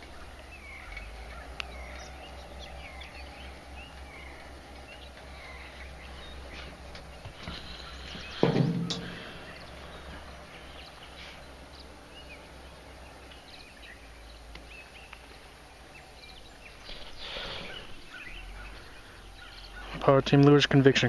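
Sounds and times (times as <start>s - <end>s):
birds chirping: 0.0s - 21.0s
person sniffing: 17.1s - 18.0s.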